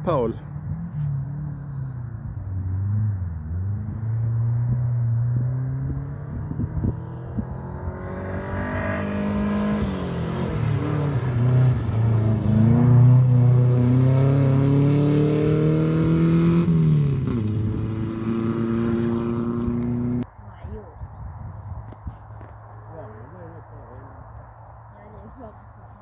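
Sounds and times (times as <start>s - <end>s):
rally car engine revving: 0.5s - 20.2s.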